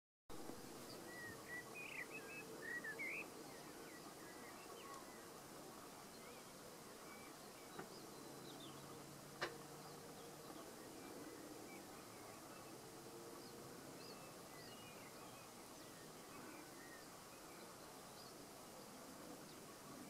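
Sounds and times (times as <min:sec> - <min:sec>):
skylark song: 0:00.3 - 0:20.0.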